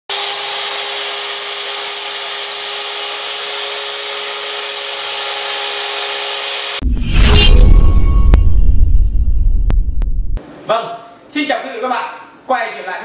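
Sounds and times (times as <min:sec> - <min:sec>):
steady hum: 0:06.8 - 0:10.4.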